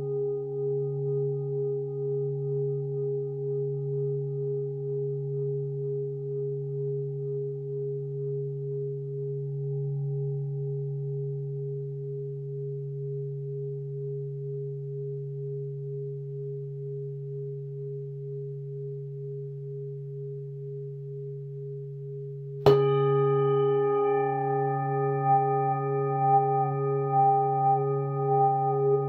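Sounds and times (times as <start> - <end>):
singing bowl low steady ring: 0.0 - 29.0
singing bowl struck sharply: 22.6 - 29.0.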